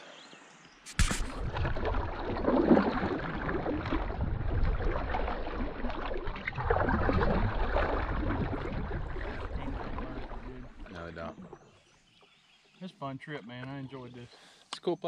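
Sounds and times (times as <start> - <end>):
paddle swishing and splashing: 0.9 - 11.8
water lapping at hull: 0.9 - 12.8
low rumble: 1.3 - 11.0.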